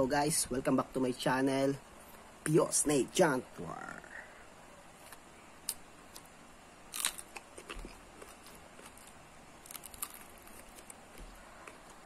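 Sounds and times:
chewing crunchy chili pepper: 0:06.9 - 0:12.0.

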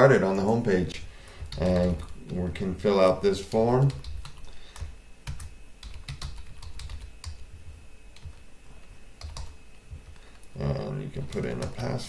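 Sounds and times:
keyboard typing clicks: 0:03.9 - 0:07.4, 0:09.2 - 0:10.5.

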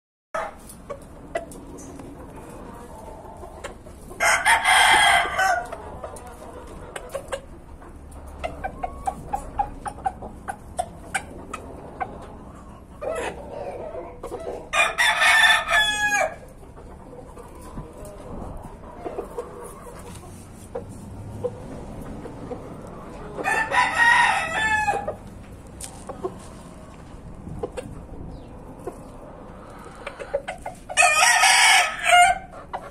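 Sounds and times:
chicken clucks: 0:00.4 - 0:32.9
rooster crowing: 0:04.2 - 0:05.7, 0:14.7 - 0:16.4, 0:23.4 - 0:25.2, 0:31.0 - 0:32.5.

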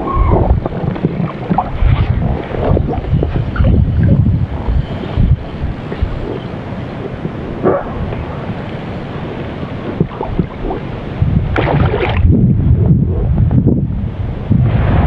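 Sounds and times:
wind on microphone: 0:00.0 - 0:15.0
fish splashing in water: 0:11.5 - 0:12.3.

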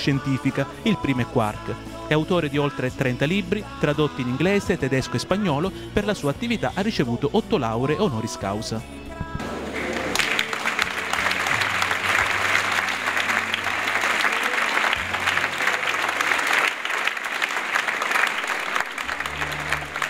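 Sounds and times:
soft background music: 0:00.0 - 0:16.4
audience applauding: 0:09.4 - 0:20.0.

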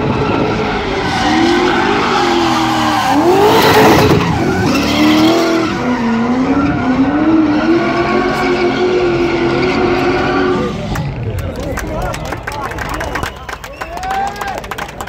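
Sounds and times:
car engine revving: 0:00.0 - 0:13.4
tyres skidding: 0:00.0 - 0:15.0.

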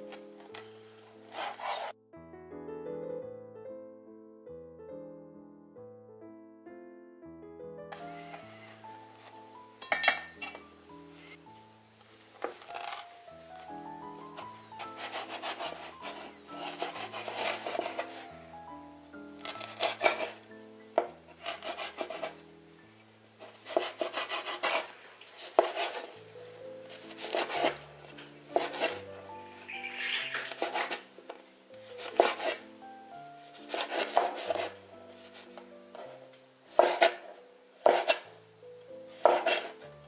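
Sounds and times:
soft background music: 0:00.0 - 0:40.0
knife striking cutting board: 0:09.8 - 0:10.6, 0:25.5 - 0:26.1, 0:29.8 - 0:31.0, 0:32.0 - 0:32.6, 0:39.2 - 0:39.7.

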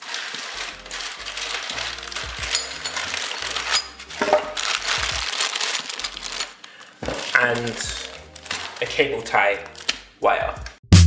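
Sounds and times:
plastic bags crinkling: 0:00.0 - 0:10.1
screws clicking and rattling: 0:01.8 - 0:06.5
metallic clinks: 0:02.4 - 0:04.5.

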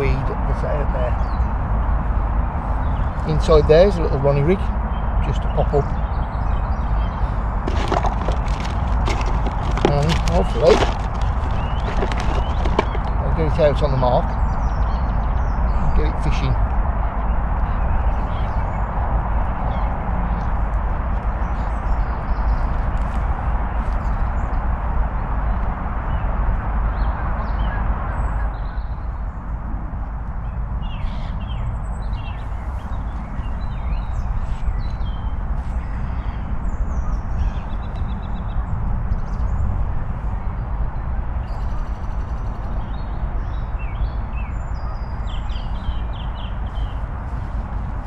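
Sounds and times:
steady low rumble: 0:00.0 - 0:27.6
birds chirping: 0:00.0 - 0:29.6, 0:30.4 - 0:48.0.

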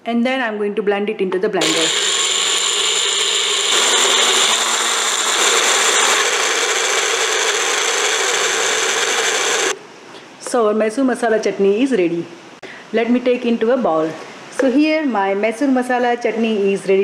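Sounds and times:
blender motor grinding: 0:01.6 - 0:09.8.

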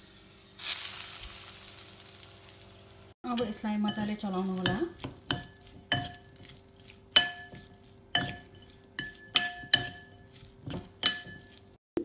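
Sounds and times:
metal spoon clinking ceramic bowl: 0:03.3 - 0:11.7.

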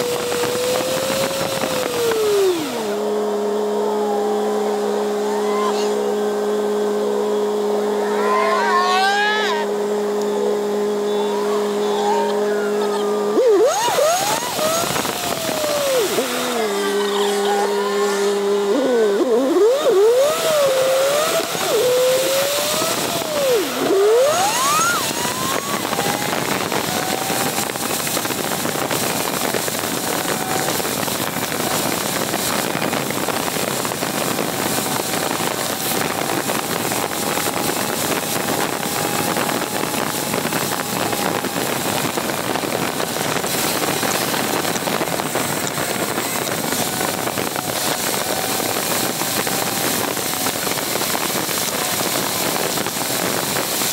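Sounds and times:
wind over camera: 0:00.0 - 0:03.0, 0:13.3 - 0:53.9
tyres rushing on pavement: 0:00.0 - 0:53.9
whistling squeals: 0:10.3 - 0:16.0, 0:21.7 - 0:27.6.

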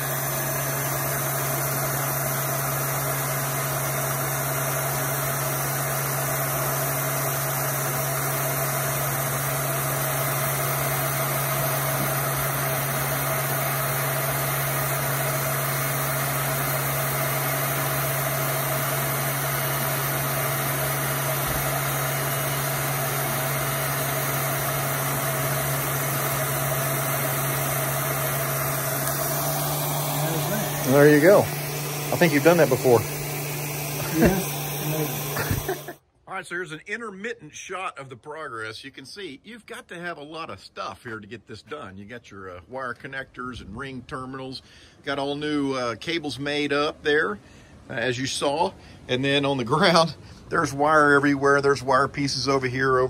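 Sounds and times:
heat gun blowing: 0:00.0 - 0:36.0.

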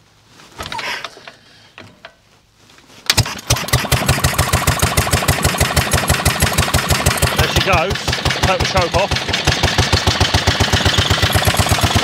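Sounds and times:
engine cranking clicks: 0:03.1 - 0:12.0
mower engine running: 0:03.1 - 0:12.0.

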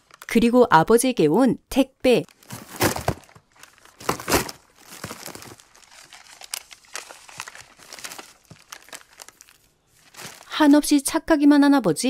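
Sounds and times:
plastic wrapping crinkling: 0:00.0 - 0:00.5, 0:02.2 - 0:11.0
rummaging in a cardboard box: 0:02.3 - 0:10.8.

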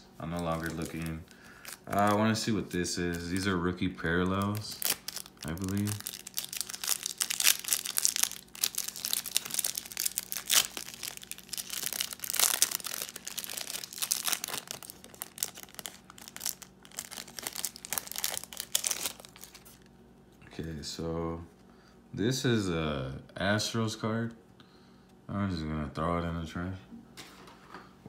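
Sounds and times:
plastic wrapper crinkling: 0:00.2 - 0:19.9.

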